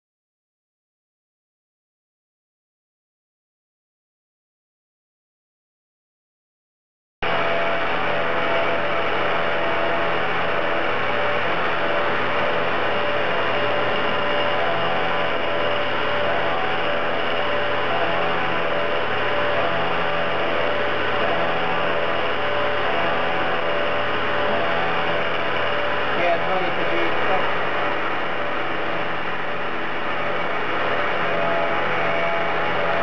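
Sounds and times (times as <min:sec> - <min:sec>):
machine tones: 0:07.2 - 0:33.0
milling machine hum and hiss: 0:07.2 - 0:33.0.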